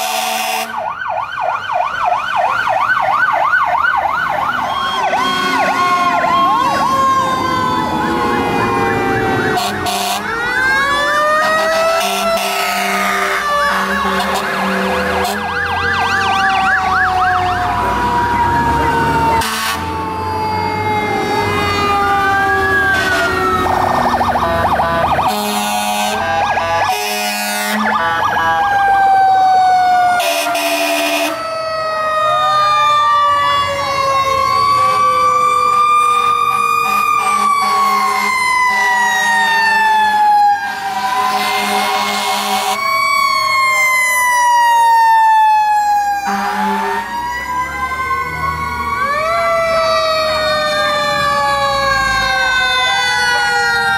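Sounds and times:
fire truck horn blasts: 0:00.0 - 0:00.9, 0:04.8 - 0:06.3, 0:08.2 - 0:10.4, 0:11.3 - 0:16.0, 0:19.3 - 0:20.1, 0:21.1 - 0:22.2, 0:22.8 - 0:28.6, 0:30.1 - 0:31.5, 0:36.8 - 0:40.0, 0:40.6 - 0:43.0, 0:46.2 - 0:47.3
electronic siren wail and yelp: 0:00.0 - 0:53.9
mechanical siren winding down: 0:15.5 - 0:25.3.

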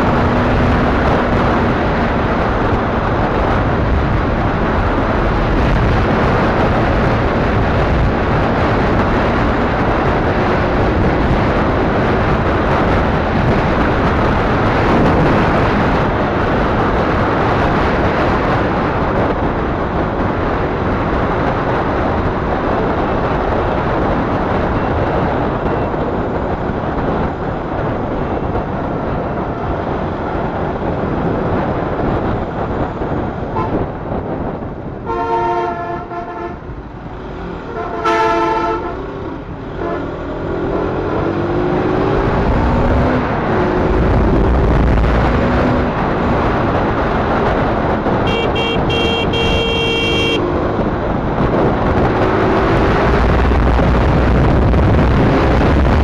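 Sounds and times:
road and engine noise: 0:00.0 - 0:56.0
wind rushing across microphone: 0:00.0 - 0:56.0.

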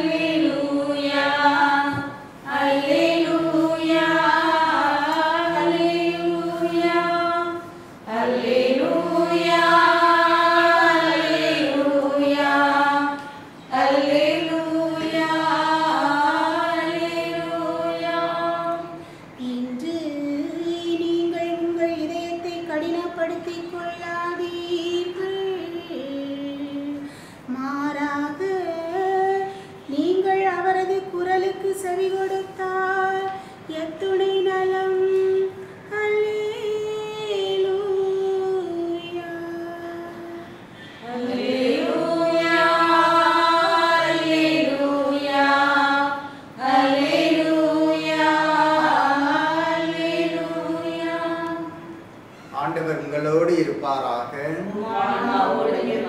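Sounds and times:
woman singing a chant: 0:00.0 - 0:52.0.

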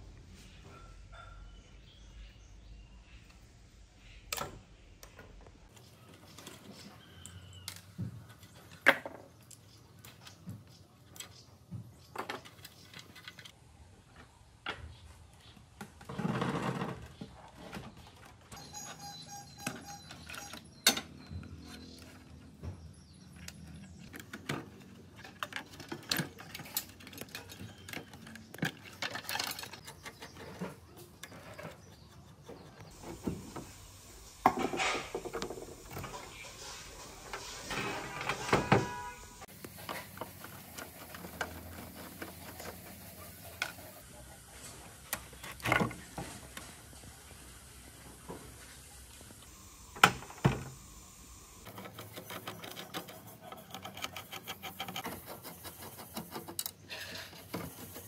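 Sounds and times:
metal and plastic clicks and scrapes: 0:23.3 - 0:33.0, 0:51.6 - 0:58.0
metal rattling and scraping: 0:34.4 - 0:39.5.

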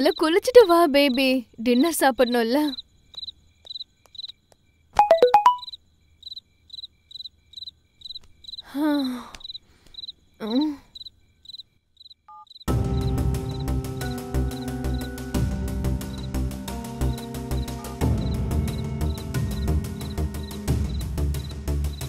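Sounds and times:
crickets chirping: 0:00.0 - 0:22.0
background music: 0:12.7 - 0:22.0.

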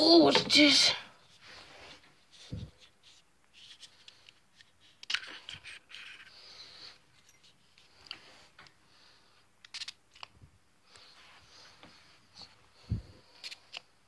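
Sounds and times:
handling small objects: 0:00.2 - 0:08.8, 0:09.4 - 0:10.5, 0:12.4 - 0:13.9.

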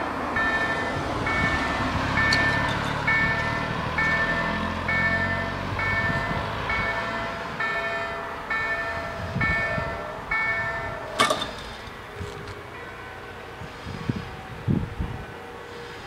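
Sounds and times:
crossing warning bells ringing: 0:00.0 - 0:16.0
metallic clank of barriers: 0:11.2 - 0:12.0.

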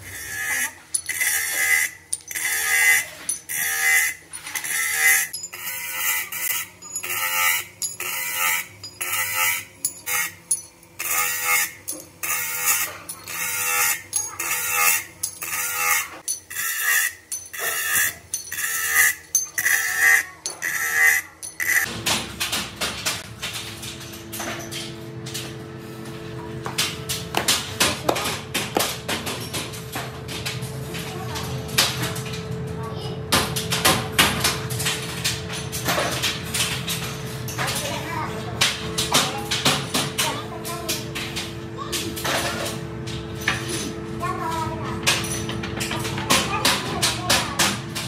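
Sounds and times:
metal scraping on polishing wheel: 0:00.0 - 0:21.9.

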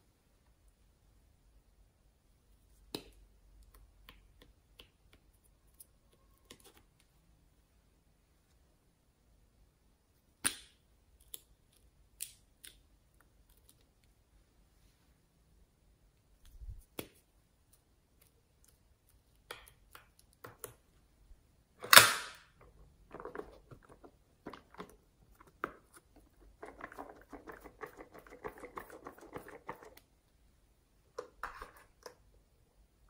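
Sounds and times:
sharp plastic snap: 0:10.4 - 0:11.4, 0:21.8 - 0:22.5.

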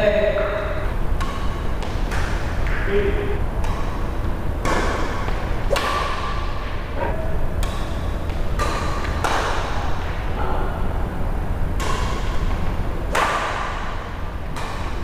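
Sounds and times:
racket striking shuttlecock: 0:01.2 - 0:03.0, 0:03.6 - 0:10.3, 0:11.8 - 0:15.0.

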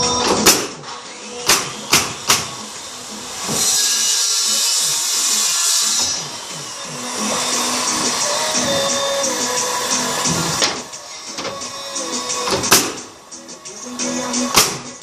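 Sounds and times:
pneumatic nail gun firing: 0:00.3 - 0:02.6, 0:03.4 - 0:13.2, 0:14.4 - 0:15.0.

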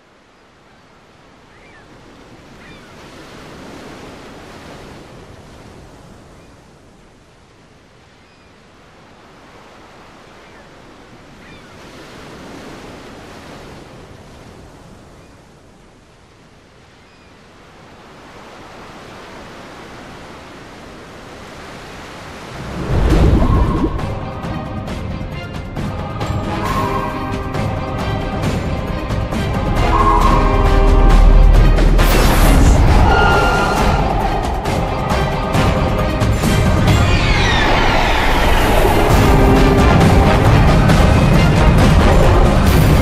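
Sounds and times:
ocean waves washing in: 0:00.0 - 0:43.0
music: 0:23.0 - 0:43.0.

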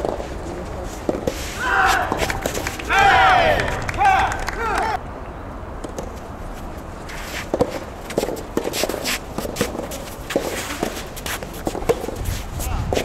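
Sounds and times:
footsteps shuffling on court: 0:00.0 - 0:03.0, 0:06.0 - 0:13.0
racket hitting rubber ball: 0:01.0 - 0:05.0.

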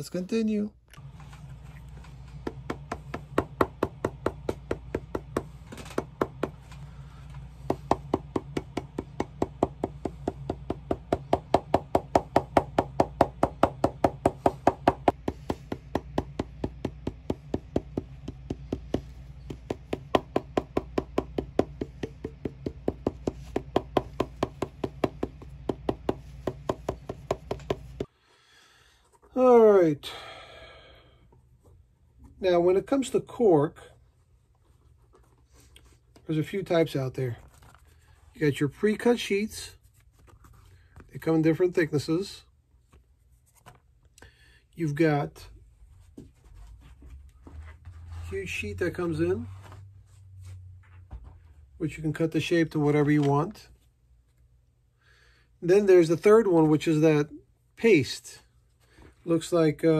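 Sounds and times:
steady low hum: 0:00.8 - 0:52.9
hammer tapping on shoe: 0:02.4 - 0:06.6, 0:07.6 - 0:28.1.

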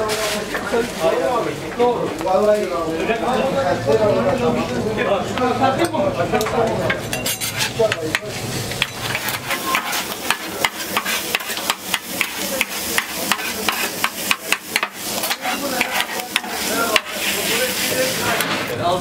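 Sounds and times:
metal utensils scraping cooking surface: 0:06.9 - 0:18.8
food sizzling: 0:07.4 - 0:19.0.

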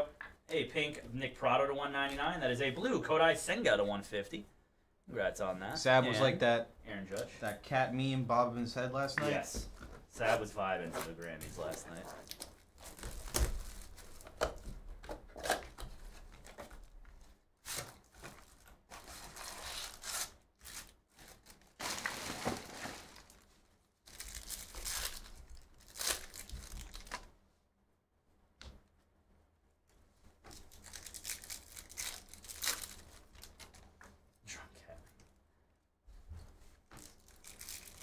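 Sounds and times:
foil wrapper ripping and crinkling: 0:17.6 - 0:27.3, 0:30.5 - 0:33.8, 0:37.0 - 0:38.0.

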